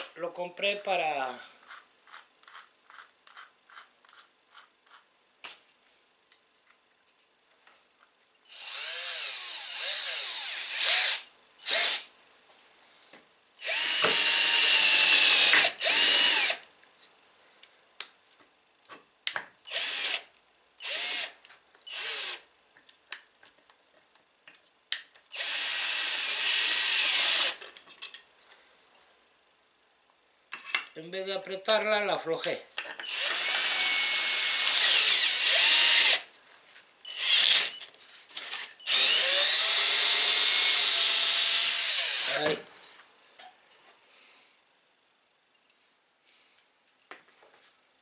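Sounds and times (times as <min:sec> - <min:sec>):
cordless drill drilling into wood: 0:08.5 - 0:12.1, 0:13.6 - 0:16.6, 0:19.7 - 0:22.4, 0:25.3 - 0:27.6, 0:33.0 - 0:36.3, 0:37.1 - 0:37.8, 0:38.4 - 0:42.6
drill chuck ratchet clicks: 0:33.0 - 0:36.2, 0:38.5 - 0:42.3.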